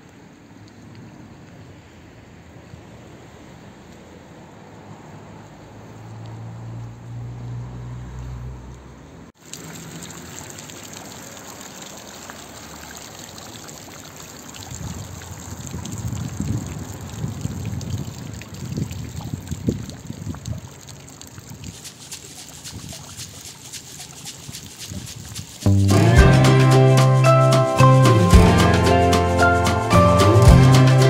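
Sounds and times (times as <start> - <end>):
fountain water splashing: 9.4 - 31.0.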